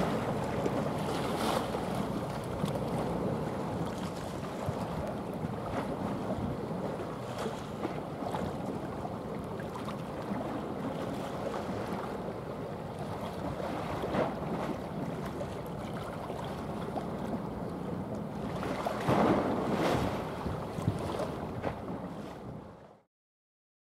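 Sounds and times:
choppy water washing: 0.0 - 23.0
wind buffeting microphone: 18.6 - 22.8.

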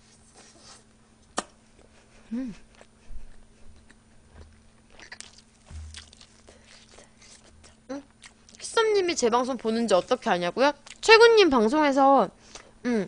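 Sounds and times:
person humming: 2.3 - 2.7
close chewing with mouth smacks: 2.7 - 8.8.

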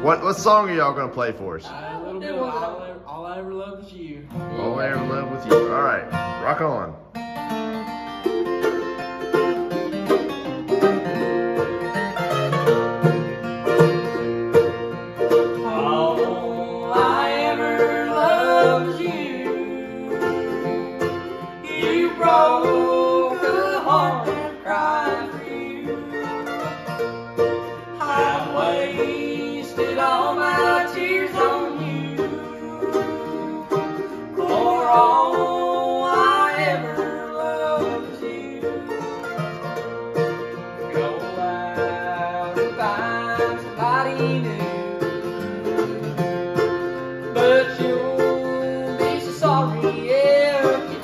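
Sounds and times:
mandolin: 0.0 - 3.4, 4.3 - 51.0
acoustic guitar: 0.0 - 51.0
man singing: 1.7 - 6.0, 15.5 - 26.8, 28.0 - 39.4, 40.8 - 45.4, 47.3 - 51.0.

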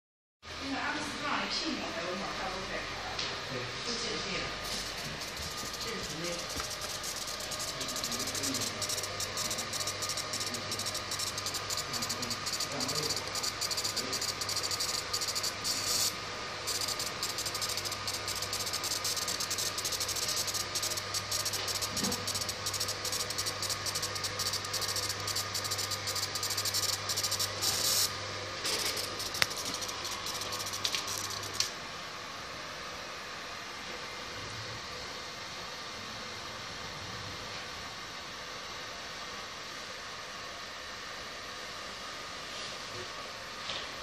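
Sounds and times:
machine hum: 3.4 - 32.5
laser marker crackling hiss: 4.6 - 28.1, 28.7 - 31.7.

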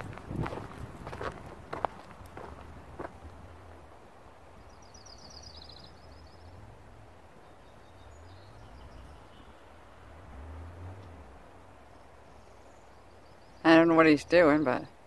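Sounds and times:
footsteps: 0.0 - 3.4
faint bird chirps: 4.6 - 6.6, 11.9 - 13.9.

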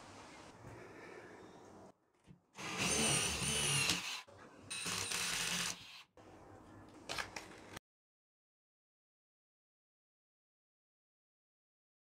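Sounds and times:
cordless drill whining: 2.6 - 6.0.

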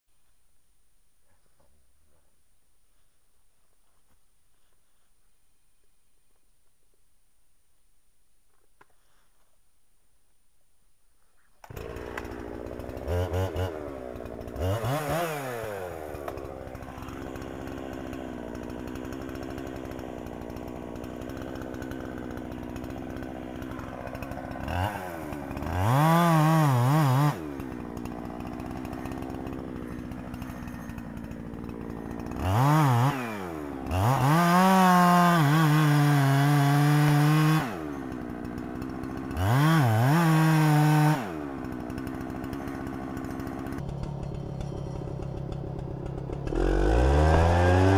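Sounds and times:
chainsaw revving and idling: 11.6 - 47.9.

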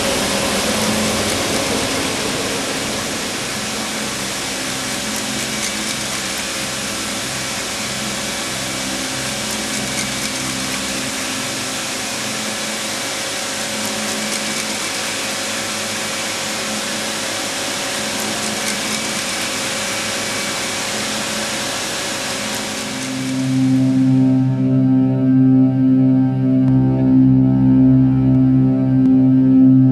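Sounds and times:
industrial machine whirring: 0.0 - 24.7
low rhythmic pulse: 22.4 - 29.9.

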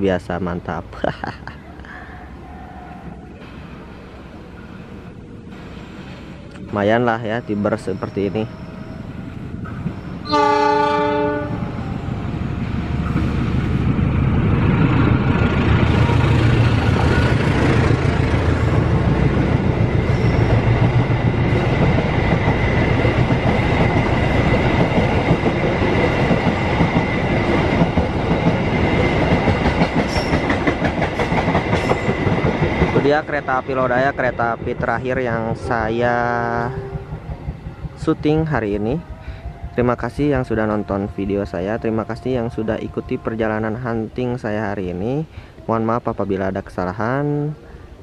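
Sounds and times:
locomotive low rumble: 2.4 - 45.0
steady high ring: 6.7 - 10.3, 20.0 - 20.7
train horn blast: 10.2 - 11.9, 36.6 - 37.3
train wheels clickety-clack: 14.7 - 38.8.

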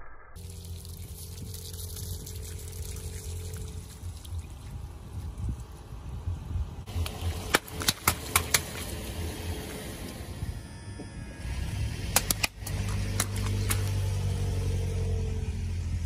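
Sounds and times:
water trickling and splashing: 0.4 - 9.8, 12.2 - 14.8
car hum: 0.4 - 16.0.

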